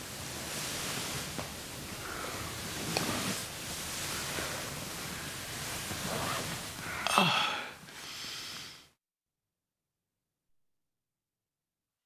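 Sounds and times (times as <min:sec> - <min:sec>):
man breathing hard and groaning: 0:06.8 - 0:08.8
loud gasp: 0:06.9 - 0:08.7.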